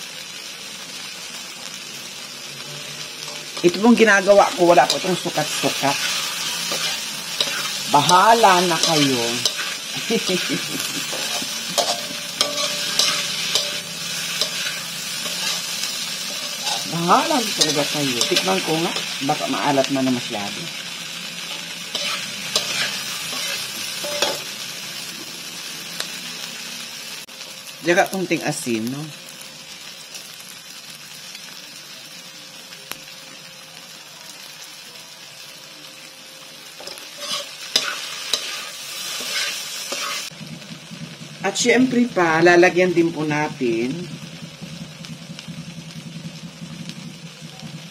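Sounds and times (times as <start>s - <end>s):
tofu sizzling in a pan: 0.0s - 47.9s
spatula scraping and knocking pan: 6.0s - 19.2s, 21.5s - 24.5s.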